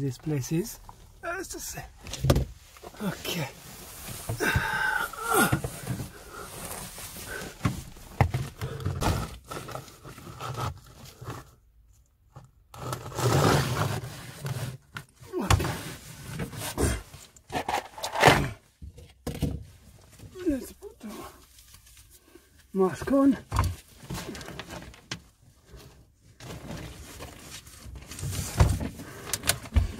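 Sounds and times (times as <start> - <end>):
person crawling and shifting about: 0.2 - 11.5, 13.6 - 29.9.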